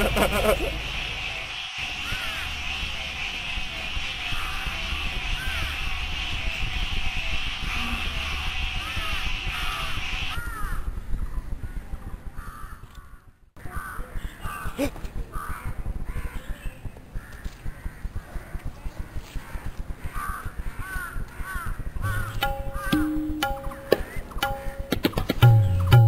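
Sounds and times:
crows cawing: 0:00.7 - 0:05.8, 0:07.7 - 0:10.9, 0:12.4 - 0:16.5, 0:17.2 - 0:23.2.

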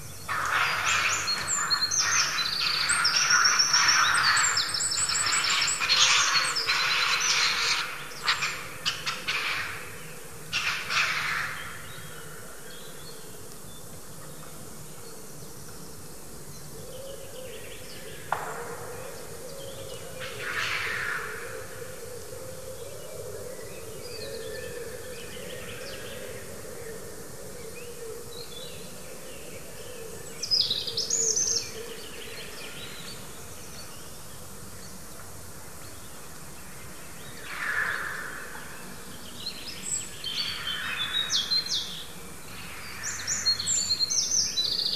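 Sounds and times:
high bird calls: 0:00.0 - 0:12.1
harsh bird cry: 0:00.3 - 0:10.0.

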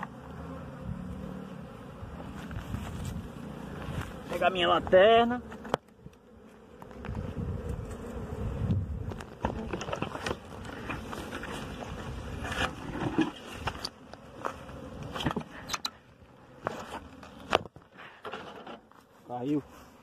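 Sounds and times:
bees buzzing: 0:00.0 - 0:20.0
gear rustling in dry vegetation: 0:02.2 - 0:04.5.

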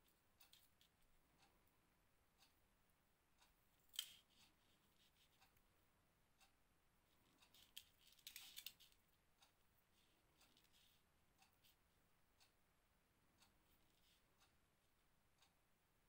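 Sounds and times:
small ticks of beads: 0:00.4 - 0:01.5, 0:07.2 - 0:11.8.

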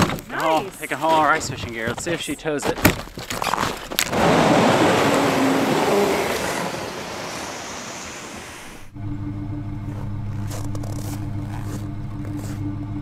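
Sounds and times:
sled rushing over snow: 0:04.0 - 0:08.9
background music with low tones: 0:08.9 - 0:13.0.

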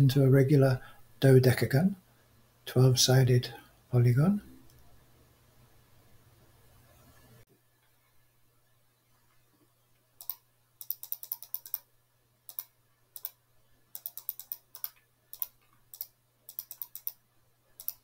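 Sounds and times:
computer mouse clicking: 0:10.2 - 0:11.9, 0:12.5 - 0:17.2, 0:17.8 - 0:18.0.

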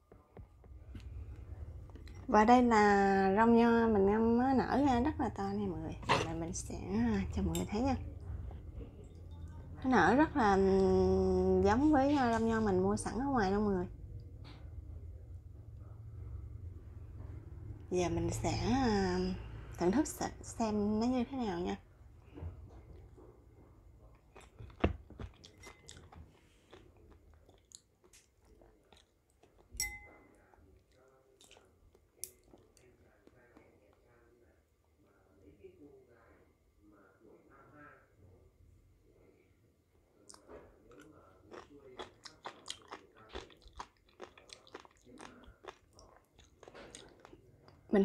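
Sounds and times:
chewing crunchy beads: 0:24.1 - 0:29.8, 0:40.3 - 0:47.9.

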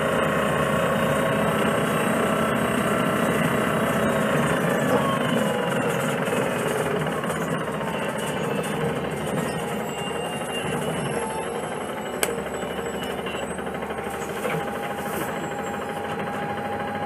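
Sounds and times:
bus engine rattly drone: 0:00.0 - 0:17.0
faint gliding whine: 0:06.9 - 0:17.0.

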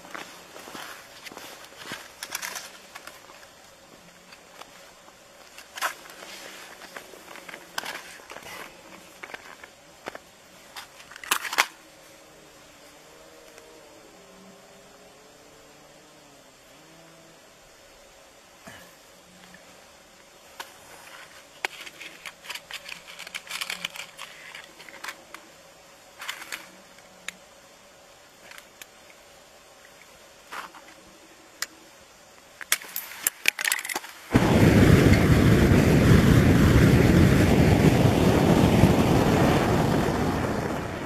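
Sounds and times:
burning gas rushing: 0:34.3 - 0:41.0.

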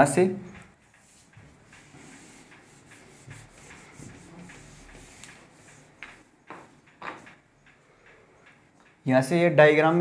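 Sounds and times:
handling rubbing and scuffing: 0:00.6 - 0:07.3
sharp taps: 0:00.6 - 0:09.0.

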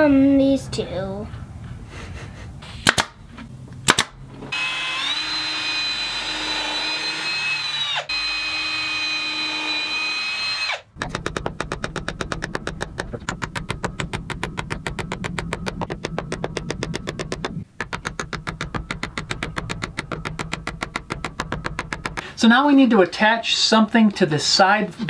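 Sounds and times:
pin nailer snaps: 0:02.8 - 0:03.2, 0:03.9 - 0:04.2
cordless drill running: 0:04.5 - 0:10.9
fast even tapping: 0:11.0 - 0:22.5.

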